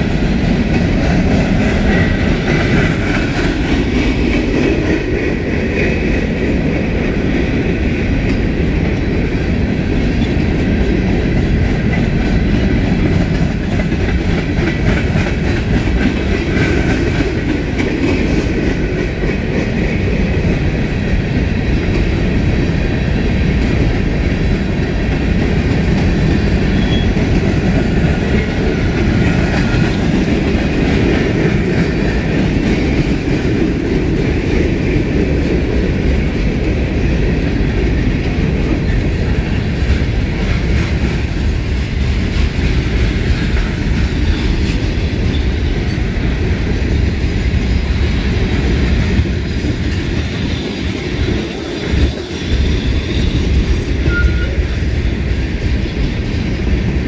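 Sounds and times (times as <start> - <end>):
clickety-clack of rail joints: 0.0 - 57.0
freight train wheels rumbling on rails: 0.0 - 57.0
high wheel squeals: 54.0 - 54.7.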